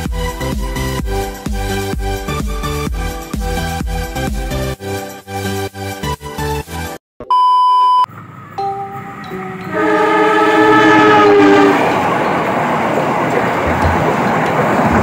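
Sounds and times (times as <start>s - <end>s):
short electronic beep: 7.2s - 9.8s
train rumbling past: 8.1s - 15.0s
locomotive horn: 8.6s - 12.2s.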